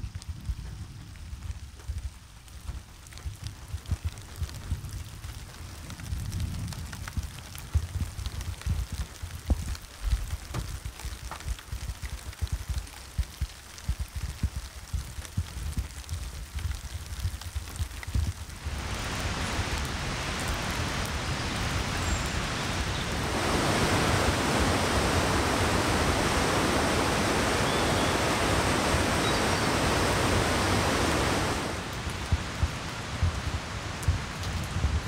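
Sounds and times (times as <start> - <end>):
soft hiss of rain: 0.0 - 35.0
creek water rushing over rapids: 18.6 - 35.0.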